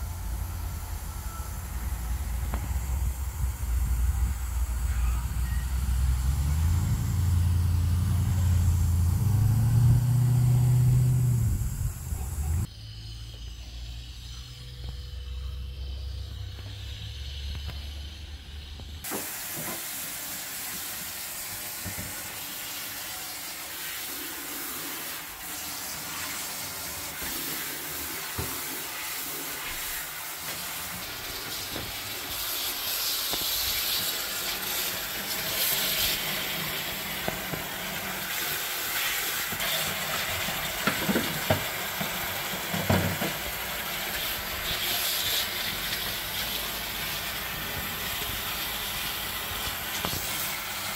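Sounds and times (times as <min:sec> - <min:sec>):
tap running into metal sink: 0:39.5 - 0:43.6.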